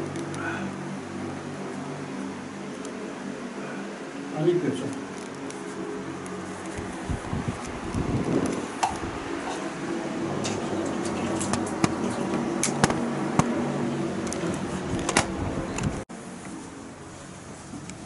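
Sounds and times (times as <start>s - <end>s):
machine hum: 0.0s - 18.0s
sharp clicks and knocks: 10.4s - 13.6s.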